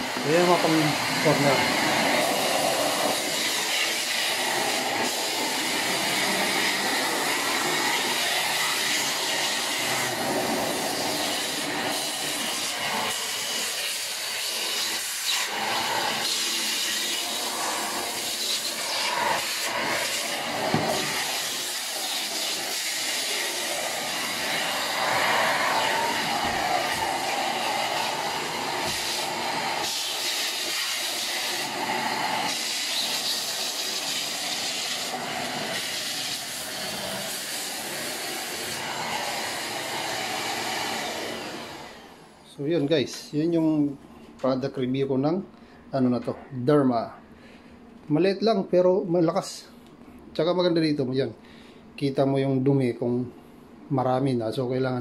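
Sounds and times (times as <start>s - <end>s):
stick vacuum running: 0.0s - 42.9s.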